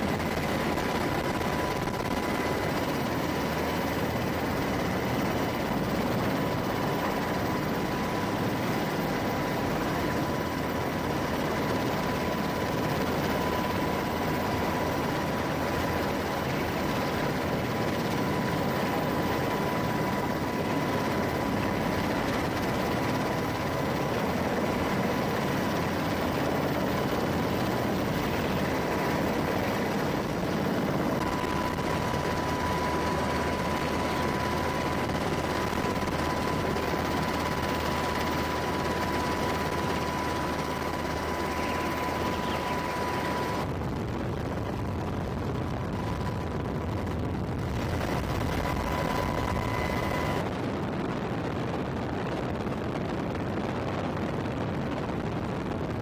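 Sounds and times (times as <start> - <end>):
helicopter rotors rushing: 0.0 - 56.0
high engine whine: 0.0 - 56.0.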